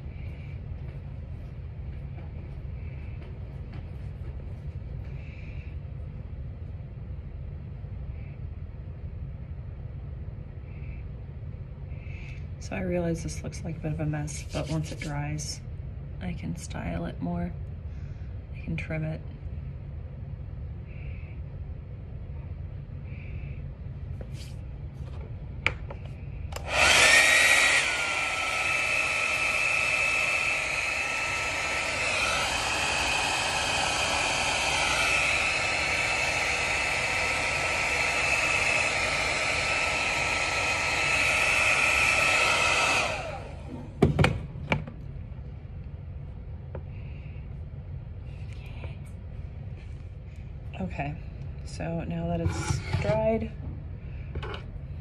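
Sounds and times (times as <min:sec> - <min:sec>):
hair dryer blowing: 0:14.0 - 0:15.6, 0:26.5 - 0:44.8, 0:52.4 - 0:53.5.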